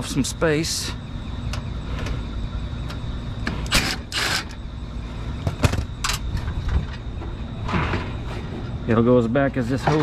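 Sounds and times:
steady low rumble: 0.0 - 3.9.

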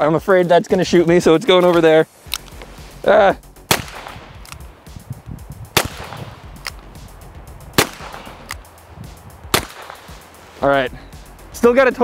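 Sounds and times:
handgun shots: 3.7 - 4.7, 5.8 - 6.8, 7.8 - 8.7, 9.5 - 10.2.

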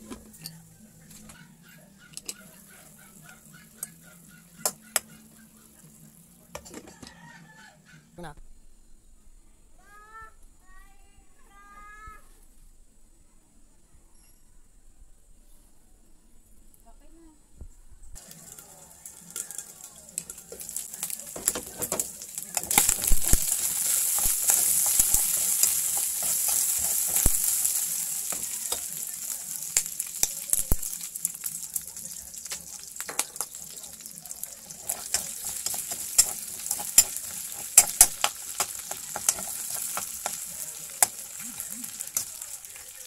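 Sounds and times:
meat sizzling in oil: 18.2 - 43.0
metal utensil scraping wok: 18.2 - 43.0.

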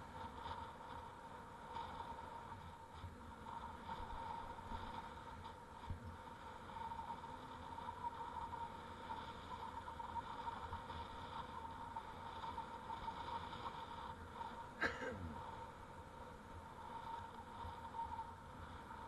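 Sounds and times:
bicycle rolling on pavement: 0.0 - 14.8
thin steady hum: 0.0 - 19.0.

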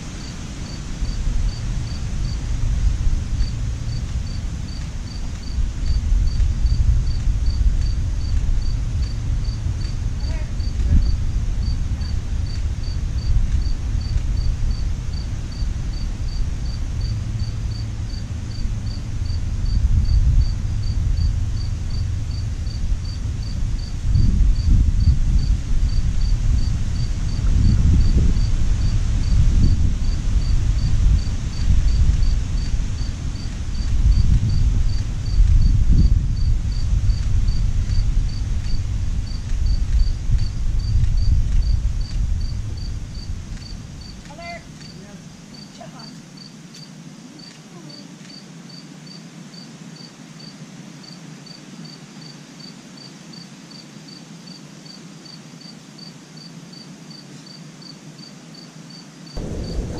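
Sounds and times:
wind rumble on microphone: 0.0 - 45.2, 59.4 - 59.9
insect chirping: 0.0 - 59.9.

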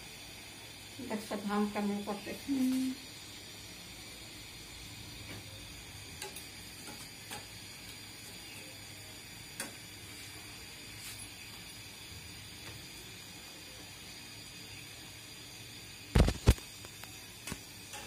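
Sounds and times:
food frying in hot oil: 0.0 - 18.0
metal rod clicking against pan: 6.2 - 7.5, 17.4 - 18.0.

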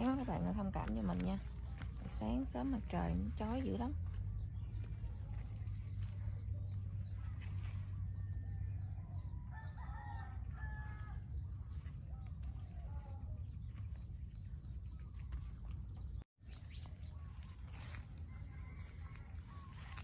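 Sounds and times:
low rumble: 0.0 - 16.2
rooster crowing: 8.1 - 11.4, 18.3 - 20.0.

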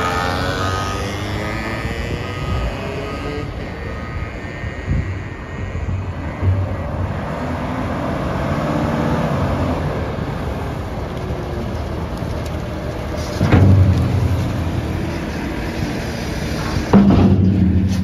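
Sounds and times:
wheel loader diesel engine running: 5.7 - 18.0.

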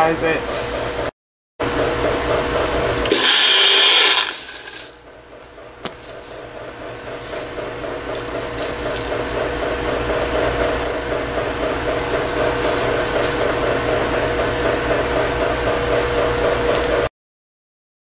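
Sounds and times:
blender motor whining: 2.4 - 5.0.

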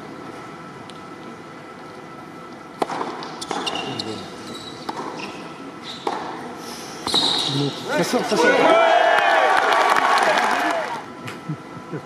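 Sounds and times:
shoe squeaks: 3.4 - 6.2, 7.0 - 7.7.

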